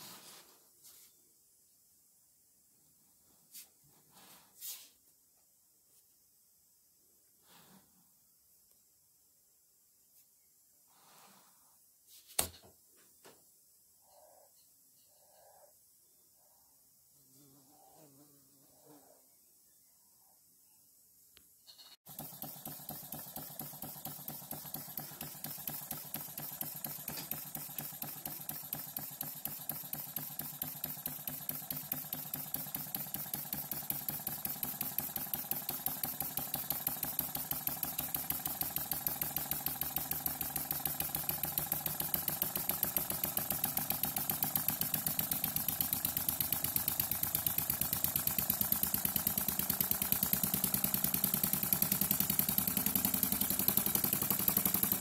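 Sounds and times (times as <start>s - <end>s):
steam engine exhaust puffs: 22.1s - 55.0s.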